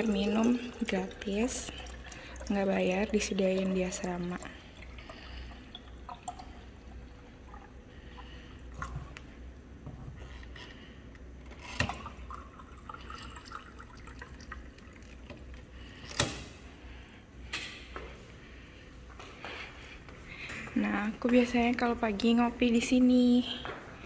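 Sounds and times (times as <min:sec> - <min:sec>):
water filling plastic bottle: 0:00.0 - 0:09.2, 0:11.6 - 0:15.9.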